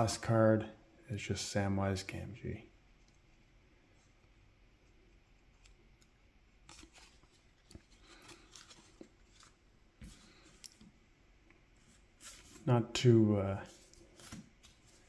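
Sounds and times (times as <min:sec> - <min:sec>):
trading cards clicking and rustling: 0:05.5 - 0:10.9.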